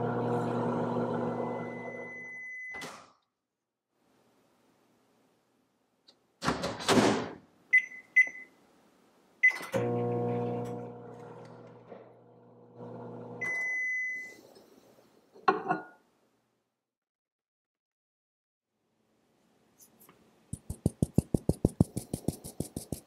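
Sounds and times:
microwave humming: 0.0 - 2.2, 9.7 - 13.8
long microwave beep: 1.4 - 2.8, 7.7 - 8.6, 13.4 - 14.4
microwave keypad beeps: 7.8 - 8.5, 13.4 - 14.4.

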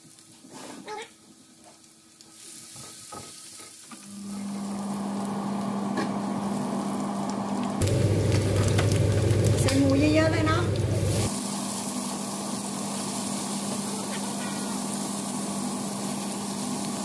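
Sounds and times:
food sizzling in hot oil: 0.0 - 17.0.

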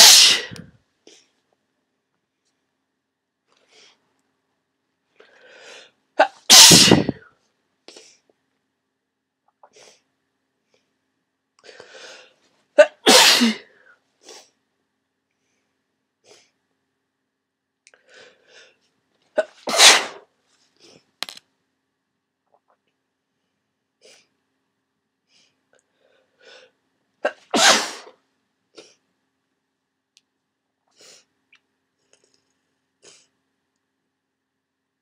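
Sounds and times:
person sneezing: 0.0 - 0.7, 6.2 - 7.2, 12.8 - 14.4, 19.4 - 20.3, 27.2 - 28.2.

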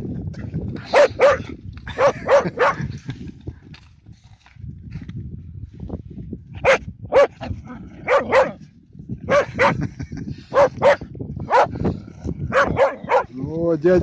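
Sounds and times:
small dog barking: 0.9 - 1.4, 2.0 - 2.8, 6.6 - 7.3, 8.0 - 8.6, 9.3 - 9.8, 10.5 - 11.7, 12.5 - 13.3.

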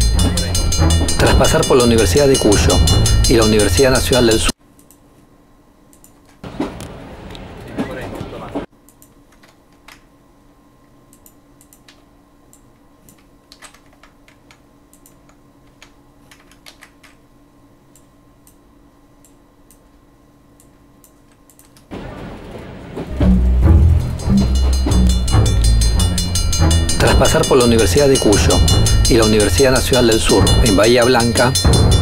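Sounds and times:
faint electrical hum: 3.0 - 23.1
keyboard and mouse clicks: 4.8 - 5.0, 5.9 - 6.4, 8.8 - 10.1, 11.1 - 17.2, 20.6 - 21.9.

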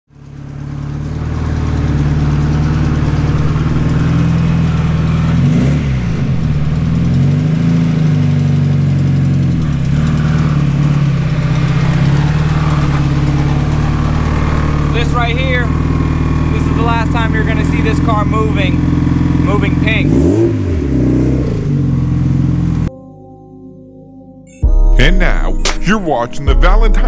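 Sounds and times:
car engine revving: 0.1 - 22.9.

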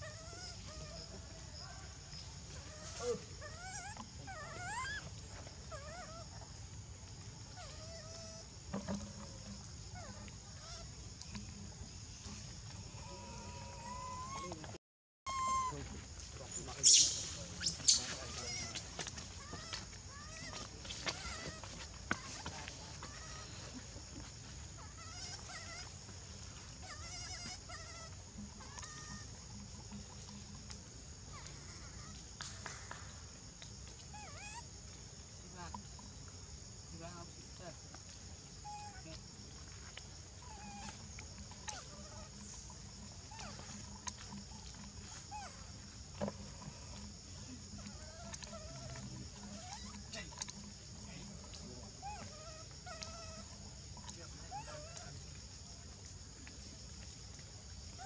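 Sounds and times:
baby monkey squealing: 0.0 - 1.1, 2.5 - 6.4, 10.0 - 10.9, 13.1 - 14.7, 15.3 - 15.8, 16.8 - 23.7, 24.8 - 26.0, 26.8 - 29.4, 31.3 - 32.2, 34.1 - 34.7, 38.6 - 39.1, 40.4 - 45.7, 47.8 - 50.7, 51.4 - 55.2.

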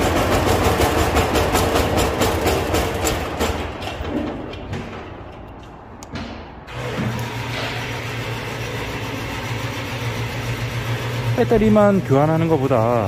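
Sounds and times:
diesel engine running: 0.0 - 3.8, 6.7 - 13.0.

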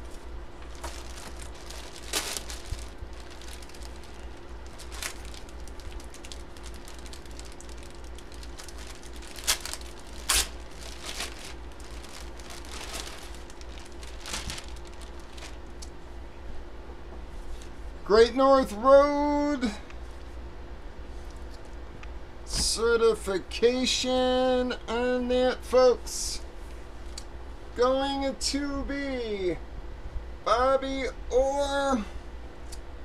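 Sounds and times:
plastic packaging crinkling: 0.0 - 15.9
steady low hum: 0.0 - 33.0.

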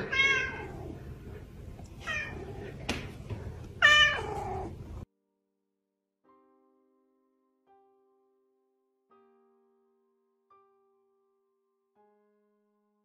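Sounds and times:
cat meowing: 0.0 - 0.9, 3.8 - 4.8.

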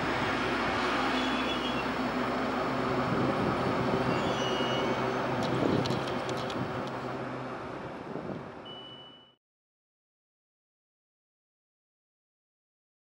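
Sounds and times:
electric train humming: 0.0 - 9.3.

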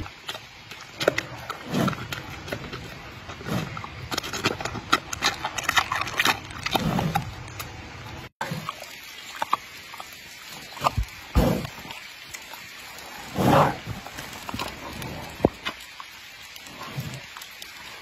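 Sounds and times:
panda chewing and munching: 0.0 - 7.8.

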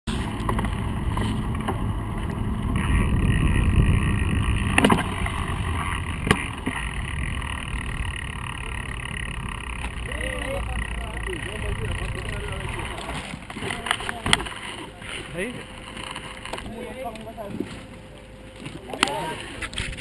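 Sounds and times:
low engine hum: 0.1 - 20.0
low rumble of road noise: 0.1 - 20.0.

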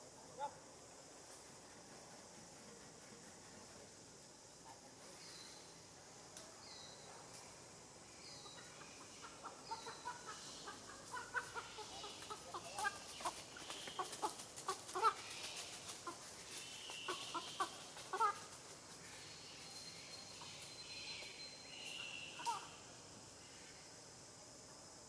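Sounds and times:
clucking animal calls: 8.5 - 18.6.

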